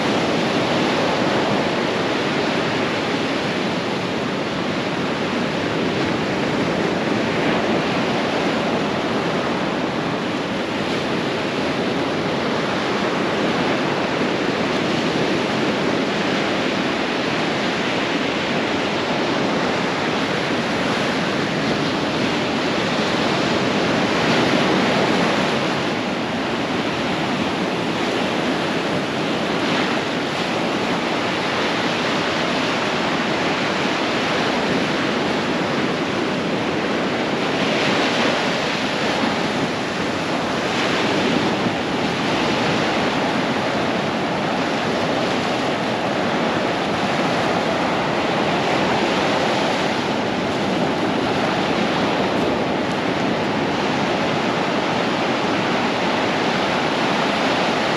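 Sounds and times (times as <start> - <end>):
waves breaking on a beach: 0.0 - 57.9.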